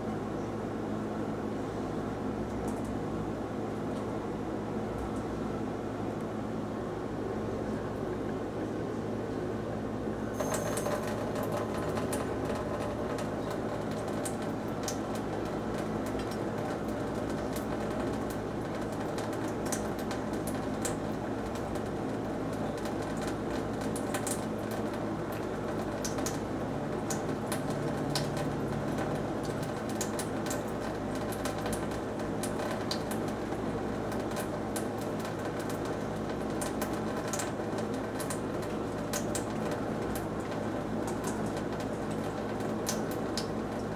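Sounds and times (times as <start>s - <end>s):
water running into a metal sink: 10.3s - 43.9s.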